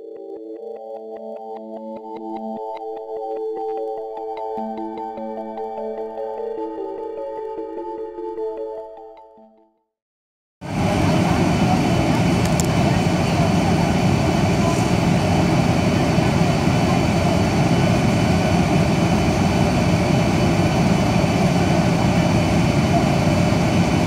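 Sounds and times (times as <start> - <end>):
jet engine and airflow roar: 10.6 - 24.0.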